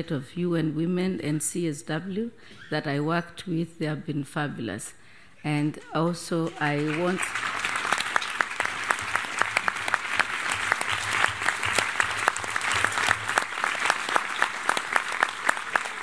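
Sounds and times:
audience applauding: 6.4 - 16.0.

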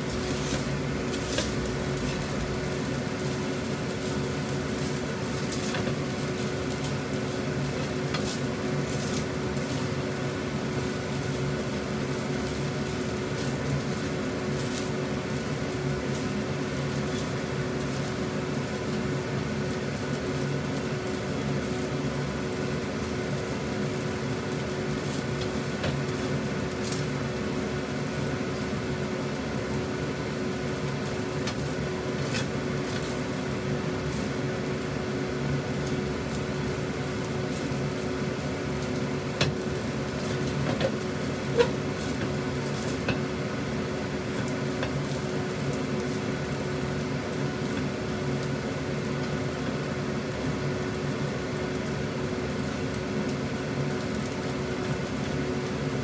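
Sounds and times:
fan hum and hiss: 0.0 - 56.0
spatula scraping a wok: 3.1 - 10.0, 40.2 - 43.2.

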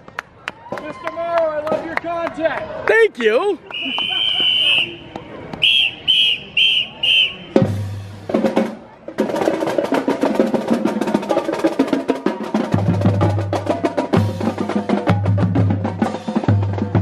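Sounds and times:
high whistle blasts: 3.7 - 7.6.

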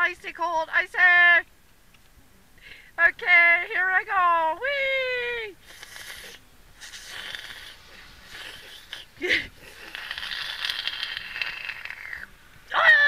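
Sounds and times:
slurping through a straw: 5.6 - 12.4.

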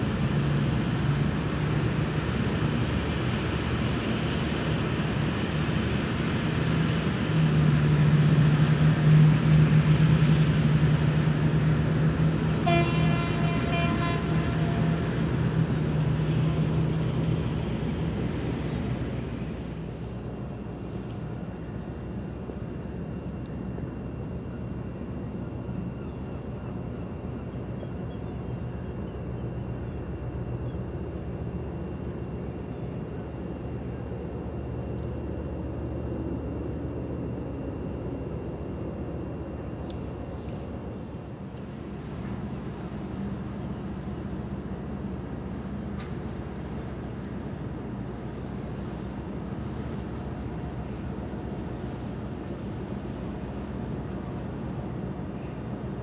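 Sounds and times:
ship engines droning: 0.0 - 56.0.

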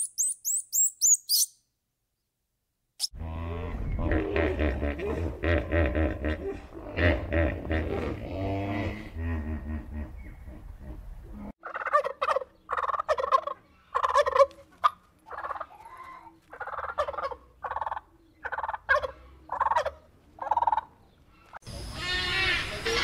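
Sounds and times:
turkey gobbling: 11.6 - 15.8, 16.5 - 20.9.

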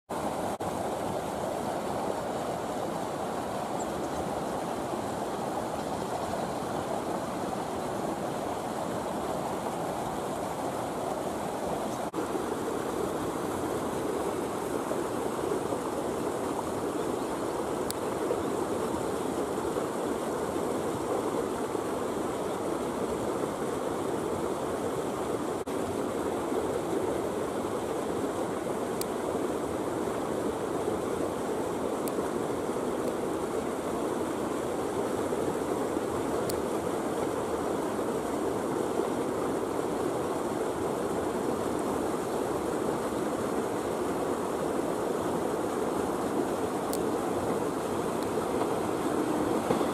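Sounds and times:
steady outdoor rushing noise: 43.6 - 49.9.

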